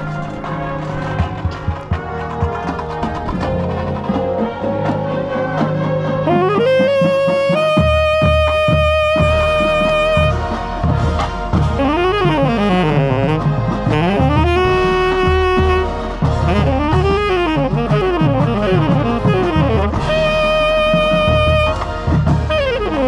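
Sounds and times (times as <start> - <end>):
marching band brass and percussion: 0.0 - 23.0
tenor saxophone solo: 6.2 - 10.9, 11.6 - 23.0.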